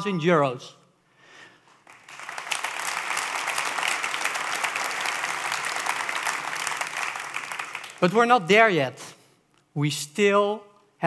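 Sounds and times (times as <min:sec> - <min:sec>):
audience applauding: 0:01.7 - 0:08.2.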